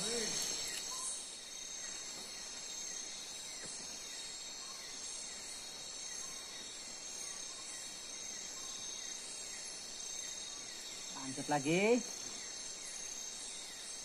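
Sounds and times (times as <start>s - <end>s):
short falling insect chirp: 0.0s - 2.3s
crickets trilling: 0.0s - 14.0s.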